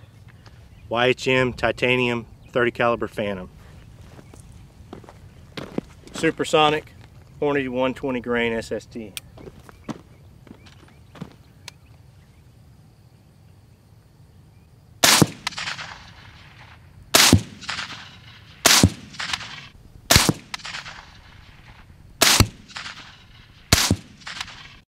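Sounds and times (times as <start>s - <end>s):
suppressed rifle shots: 15.0s - 24.8s.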